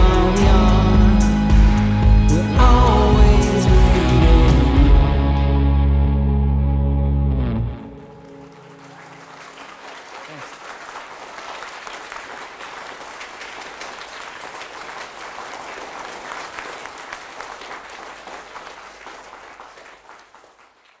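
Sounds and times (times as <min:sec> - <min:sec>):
audience applauding: 0:07.8 - 0:21.0.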